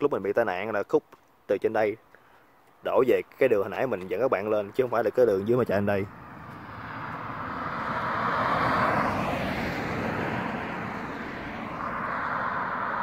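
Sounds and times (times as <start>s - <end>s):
vehicle road and wind roar: 3.8s - 13.0s.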